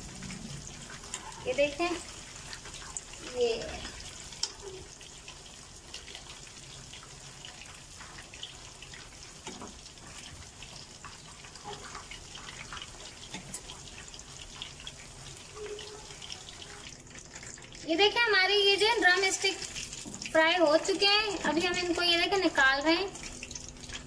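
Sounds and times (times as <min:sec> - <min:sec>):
chicken deep-frying in oil: 0:00.0 - 0:24.0.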